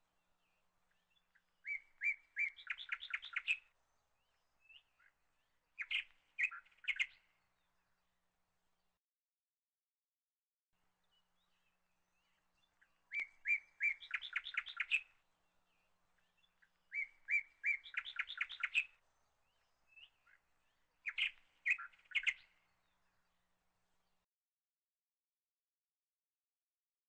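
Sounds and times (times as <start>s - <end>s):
small bird singing: 0.0s - 8.2s, 10.9s - 24.2s.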